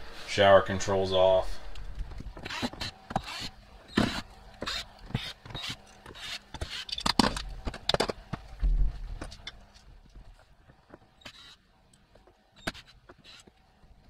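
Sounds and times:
drill hum: 2.1s - 7.9s, 11.2s - 11.7s.

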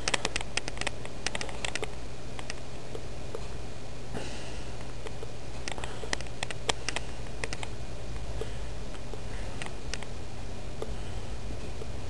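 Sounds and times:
sharp clicks and taps: 0.0s - 3.5s, 5.0s - 7.7s, 8.9s - 10.1s
low hum and hiss: 0.0s - 12.0s.

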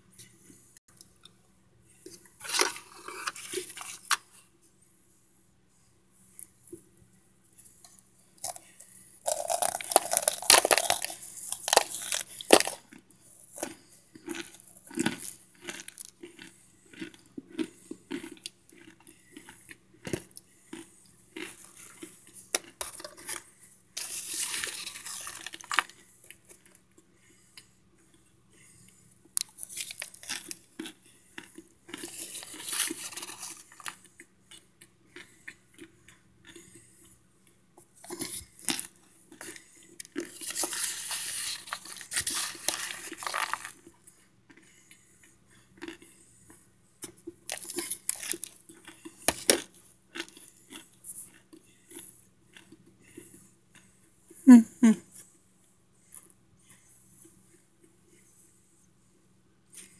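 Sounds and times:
chewing crunchy food: 2.0s - 4.4s, 7.6s - 54.4s.

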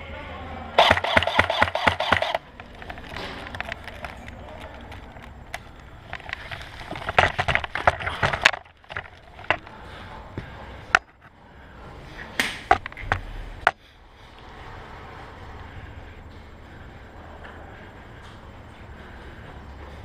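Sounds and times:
sharp knocks and cracks: 0.8s - 9.6s, 12.4s - 13.8s.

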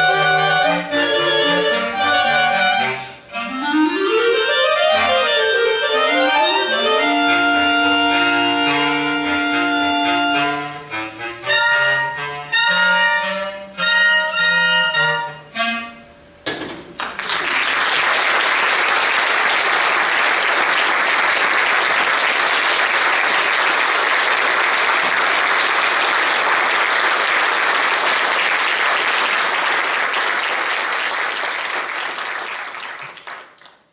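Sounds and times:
audience applauding: 16.9s - 33.9s.

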